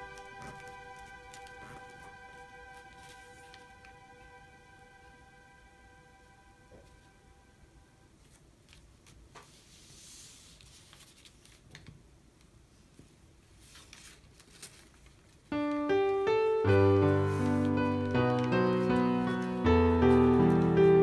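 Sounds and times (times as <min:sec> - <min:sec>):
paper crinkling: 0:00.0 - 0:04.0, 0:08.2 - 0:12.0, 0:13.4 - 0:21.0
loud piano music: 0:00.0 - 0:07.6, 0:15.5 - 0:21.0.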